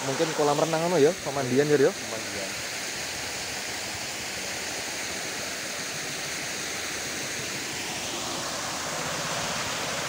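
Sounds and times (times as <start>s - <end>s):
water jet splashing into pool: 3.6s - 10.0s.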